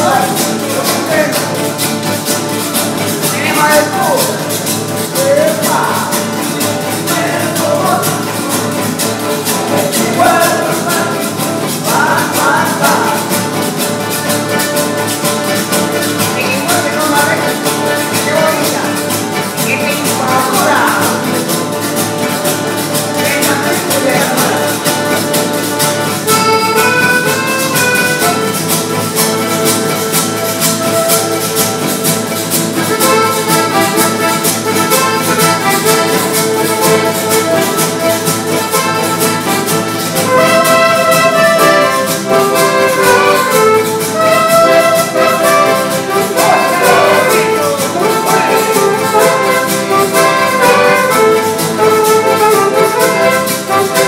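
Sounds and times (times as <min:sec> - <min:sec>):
acoustic guitar: 0:00.0 - 0:54.0
button accordion: 0:00.0 - 0:54.0
man singing: 0:06.8 - 0:08.8, 0:09.4 - 0:13.5, 0:16.2 - 0:21.6, 0:23.1 - 0:25.0, 0:44.7 - 0:51.2.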